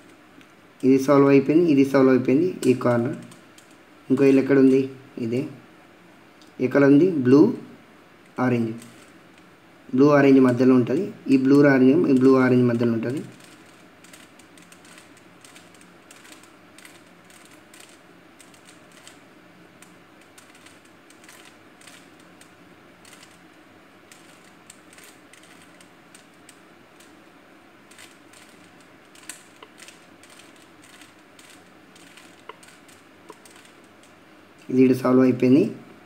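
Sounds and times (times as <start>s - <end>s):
puzzle cube clicking as turned: 2.6s - 3.8s, 8.8s - 9.2s, 13.1s - 19.2s, 19.8s - 23.5s, 24.1s - 27.2s, 27.9s - 34.7s.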